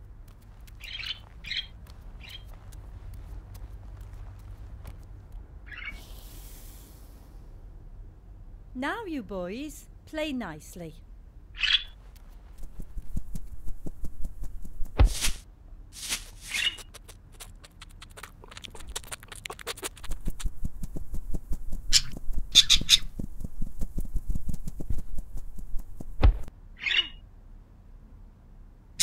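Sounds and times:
rustling: 0:00.0 - 0:05.6, 0:11.9 - 0:15.4, 0:16.0 - 0:26.5
quick clicks: 0:16.1 - 0:23.3
heavy thud: 0:26.1 - 0:26.5.

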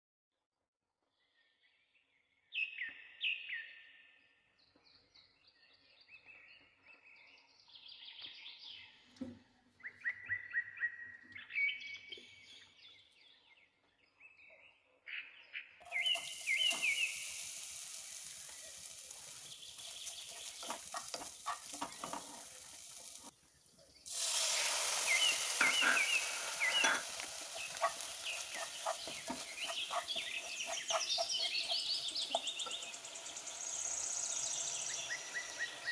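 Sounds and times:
small birds chirping: 0:09.8 - 0:35.9
hiss in a pan: 0:15.8 - 0:23.4, 0:24.0 - 0:35.9
spatula clicks and scrapes in pan: 0:18.3 - 0:23.3, 0:25.6 - 0:32.9.

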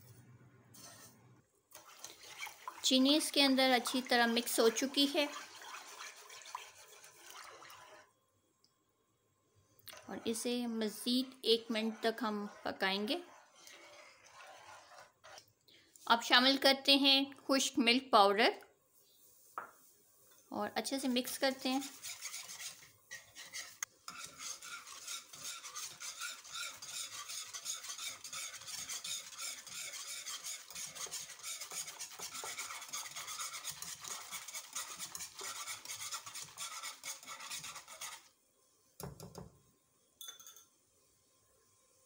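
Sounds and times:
metal whisk swishing in a pan: 0:00.8 - 0:01.2, 0:01.8 - 0:08.1, 0:09.9 - 0:15.4, 0:21.0 - 0:38.3.

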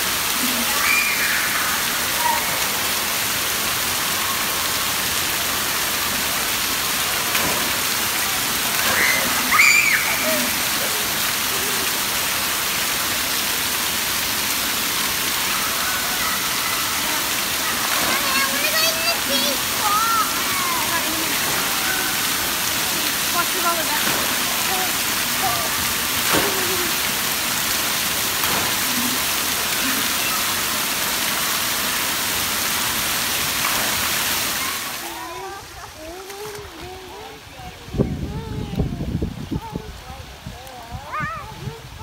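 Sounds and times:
water jets spraying: 0:00.0 - 0:37.8.

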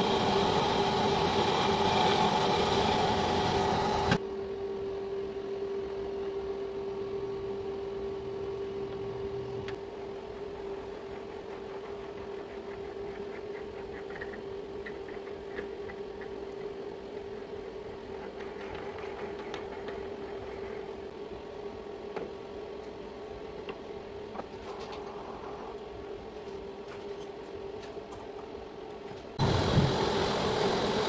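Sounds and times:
lathe machine hum: 0:00.0 - 0:04.2.

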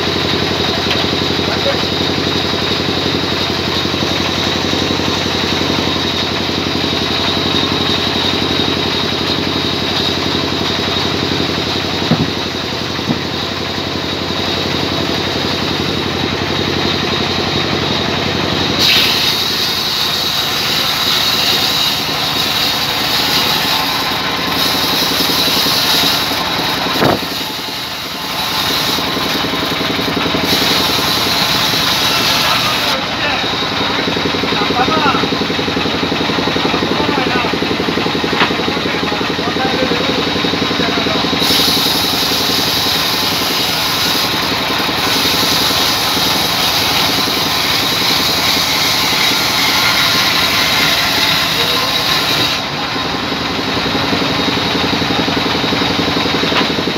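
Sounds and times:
saw blade whining through log: 0:00.0 - 0:56.9
sawmill engine humming: 0:00.0 - 0:56.9
knocks: 0:12.1 - 0:12.4.

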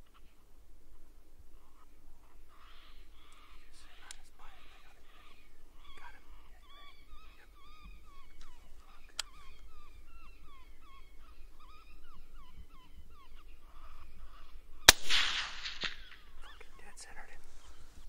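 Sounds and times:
high yipping calls: 0:01.6 - 0:18.0
rifle shot: 0:14.9 - 0:16.3.

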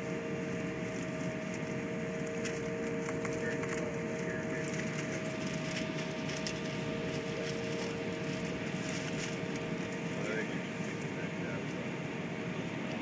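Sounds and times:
jet engines rumbling at idle: 0:00.0 - 0:13.0
steady whining tones: 0:00.0 - 0:13.0.

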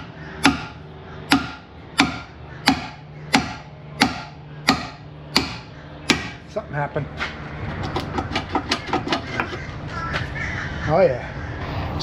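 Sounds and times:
hammer striking steel: 0:00.0 - 0:06.4.

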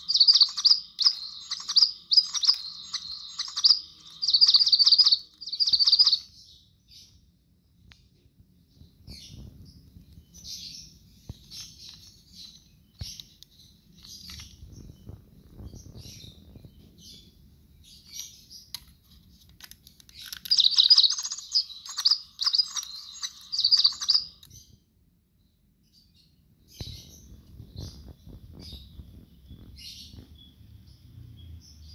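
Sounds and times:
electronic toy bird chirping: 0:00.0 - 0:06.5, 0:10.1 - 0:13.3, 0:20.2 - 0:24.6.

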